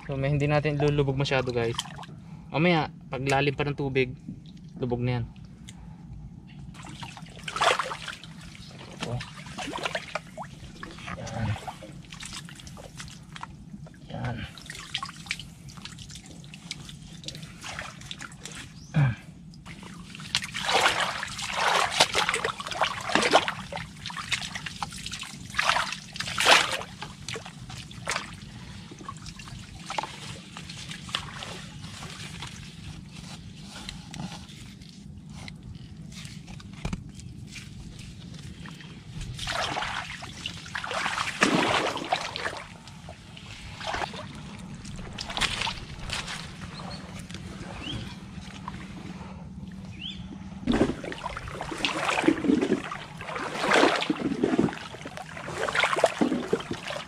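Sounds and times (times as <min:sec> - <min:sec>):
shallow water splashing: 0:06.7 - 0:18.8, 0:19.5 - 0:33.6, 0:37.5 - 0:57.0.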